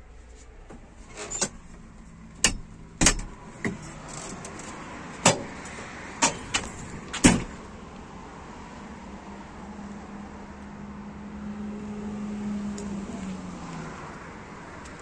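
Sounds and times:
sharp knocks and clicks: 2.4 - 7.6.

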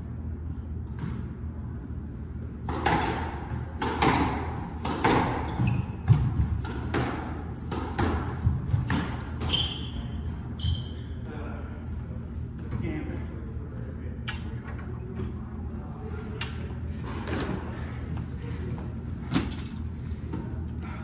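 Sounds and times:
squash ball hitting racquets and walls: 0.5 - 1.6, 2.5 - 10.9, 16.4 - 20.6.

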